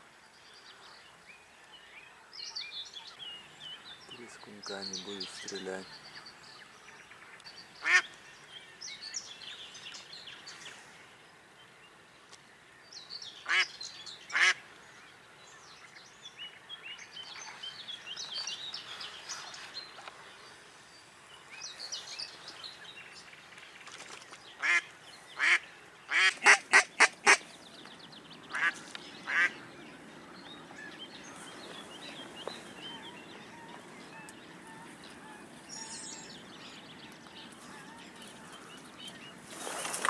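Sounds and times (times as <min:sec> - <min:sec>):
duck quacking: 0:25.4 - 0:27.4, 0:28.5 - 0:29.5.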